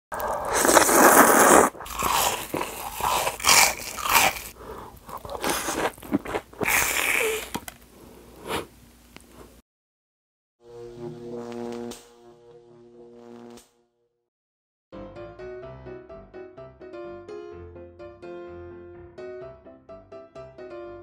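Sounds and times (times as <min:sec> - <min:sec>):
noodles slurped: 0:00.1 - 0:07.7
close-miked chewing: 0:00.1 - 0:09.5
crunchy bites into fried cutlet: 0:00.2 - 0:07.8.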